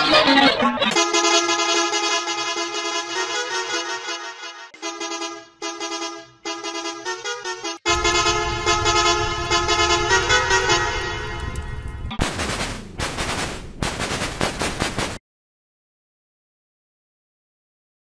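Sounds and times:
bus horn blasts: 0.9s - 12.1s
harsh distorted noise bursts: 12.2s - 15.2s.

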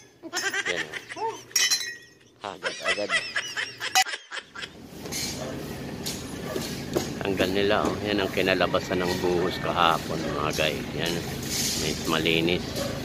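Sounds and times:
voices: 7.1s - 13.0s
rough scraping and clattering: 9.0s - 13.0s.

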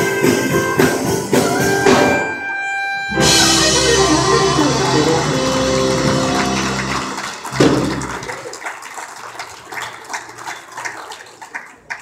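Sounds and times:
live band with saxophone: 0.0s - 8.5s
congregation calling out: 3.1s - 8.6s
people clapping: 4.0s - 12.0s.

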